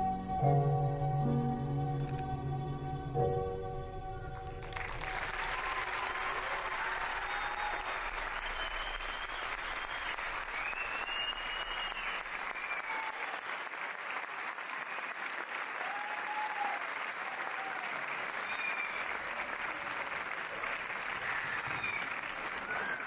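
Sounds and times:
audience applauding: 4.4 - 23.0
people cheering: 4.6 - 23.0.

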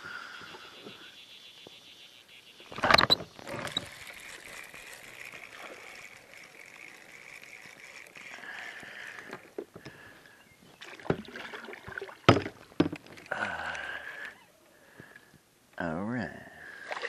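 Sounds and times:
fishing reel spinning: 0.2 - 9.9
fishing line being handled: 2.7 - 10.0
faint water lapping: 3.4 - 12.3, 16.6 - 17.0
knock or splash: 11.0 - 12.5.

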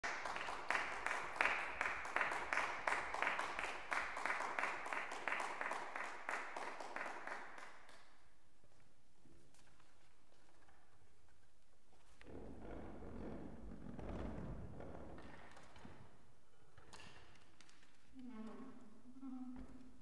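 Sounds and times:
audience applause: 0.0 - 7.9.

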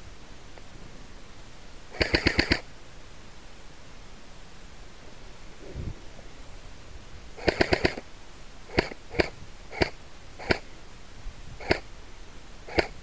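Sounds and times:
airsoft gun shots: 2.0 - 2.7, 7.4 - 8.0, 8.7 - 10.6, 11.6 - 11.9, 12.7 - 13.0.

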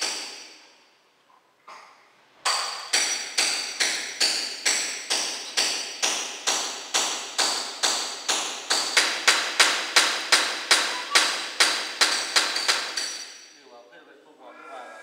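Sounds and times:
hammer blows on tile: 7.4 - 13.4.

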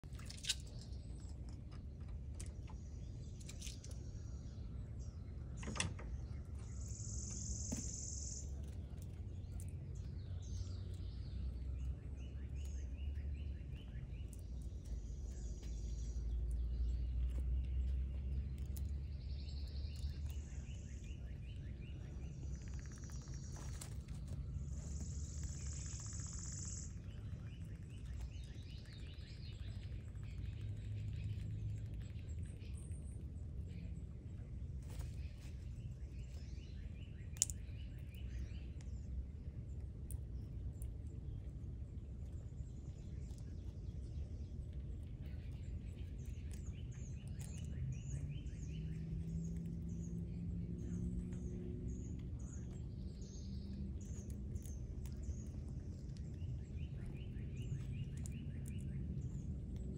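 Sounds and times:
small birds chirping: 0.0 - 59.9
steady low rumble: 0.0 - 59.9
bird trills: 22.5 - 23.9, 24.8 - 31.3
small sharp clicks: 37.3 - 37.8.

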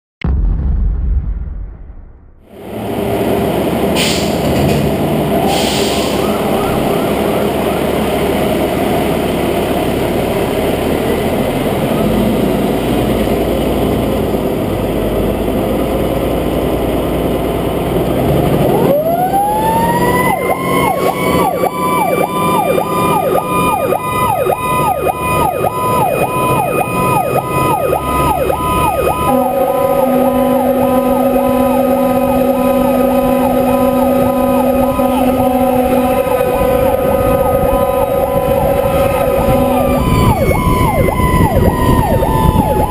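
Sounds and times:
diesel engine running: 2.5 - 42.9
siren warbling: 6.0 - 8.1, 18.3 - 42.9
horn low tones: 17.8 - 42.9.

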